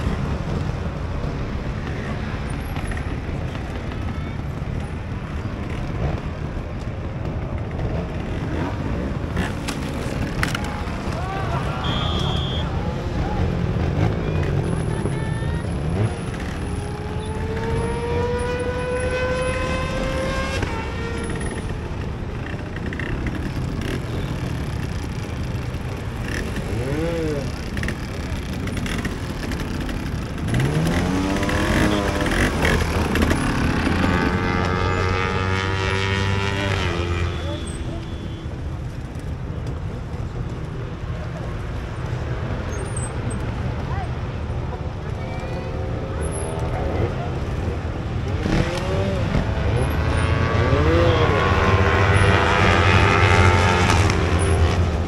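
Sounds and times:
motorcycle engines running: 0.0 - 55.0
faint spectator chatter: 43.6 - 48.6.

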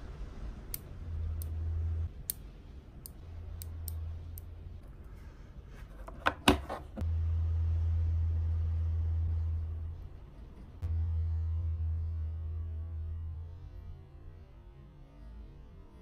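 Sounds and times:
low hum: 0.0 - 16.0
magnet balls clicking: 2.2 - 4.5.

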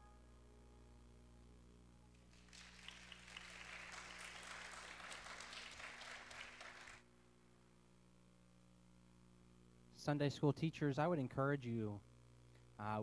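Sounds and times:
congregation applauding: 2.2 - 7.0.

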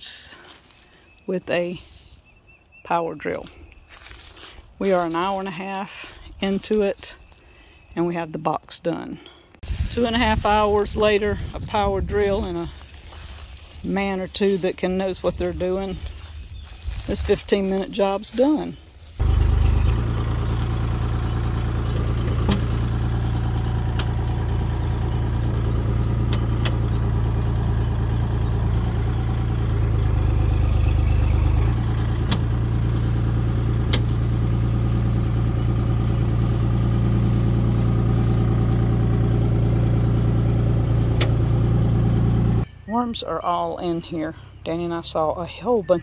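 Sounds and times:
tractor engine running: 9.6 - 46.0.

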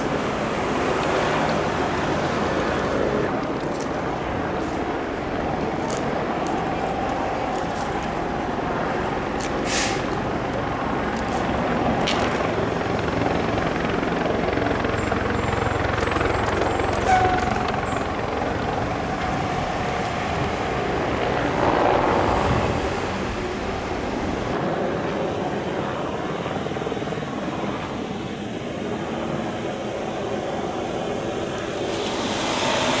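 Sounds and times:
fire truck engines running: 0.0 - 33.0
traffic noise: 0.0 - 33.0.

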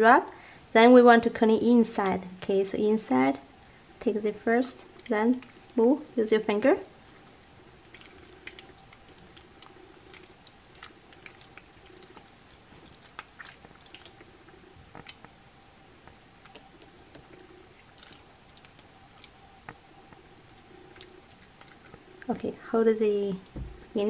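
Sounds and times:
faint steady hum: 0.0 - 24.0
wet squelching of hands: 6.9 - 14.3.

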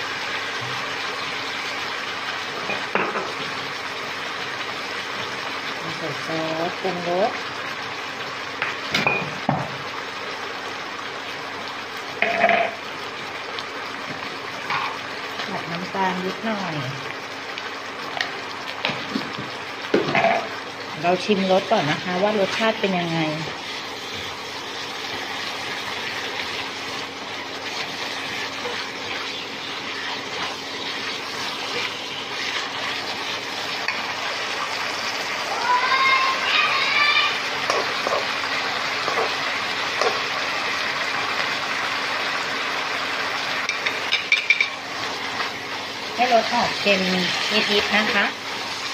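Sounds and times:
meat sizzling in a wok: 0.0 - 48.9
spatula scraping wok: 21.3 - 34.2, 46.2 - 48.9
spatula scraping pan: 26.8 - 34.0.

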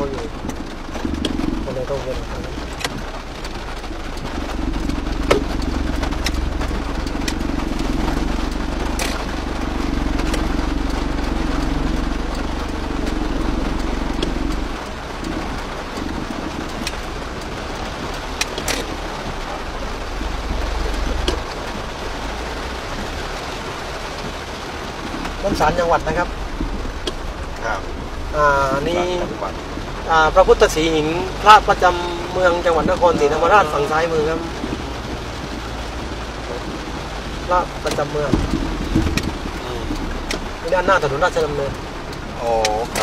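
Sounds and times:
vehicle engine and tyre rumble: 0.0 - 43.0
hum: 0.4 - 23.6.

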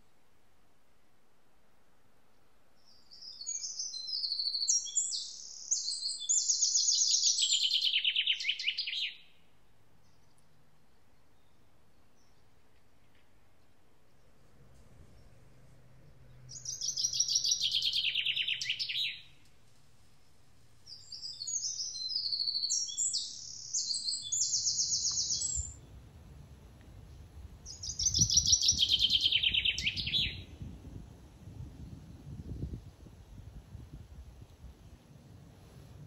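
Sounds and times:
bird chirps: 2.8 - 9.4, 16.1 - 19.4, 20.8 - 26.0, 27.7 - 30.6.

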